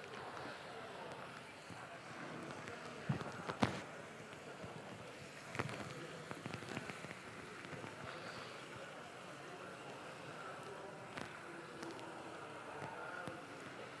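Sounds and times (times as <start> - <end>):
rice crackling and sizzling in a pan: 0.0 - 14.0.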